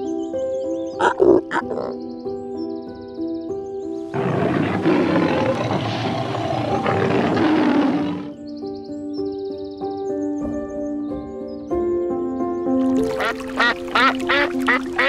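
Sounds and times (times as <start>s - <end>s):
background music: 0.0s - 15.0s
lion roaring: 4.1s - 8.4s.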